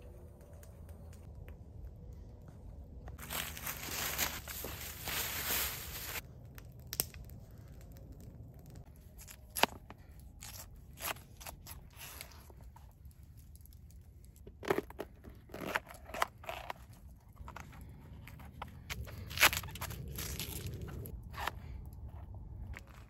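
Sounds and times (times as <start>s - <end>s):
bag rustling: 3.2s - 6.2s.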